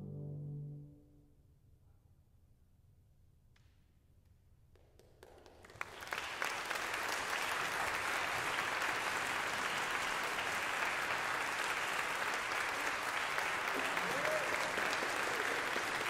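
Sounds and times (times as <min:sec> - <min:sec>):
audience applause: 0:05.2 - 0:16.0.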